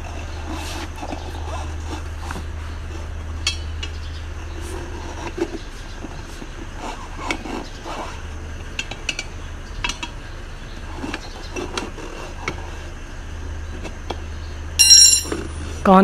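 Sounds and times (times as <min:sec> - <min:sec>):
tyre levers clinking on metal rim: 0:14.8 - 0:15.8.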